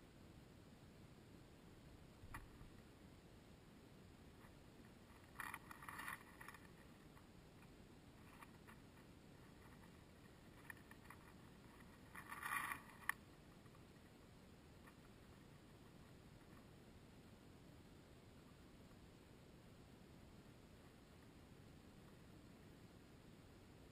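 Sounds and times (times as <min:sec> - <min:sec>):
faint ticks: 0:02.2 - 0:02.9, 0:04.4 - 0:14.2.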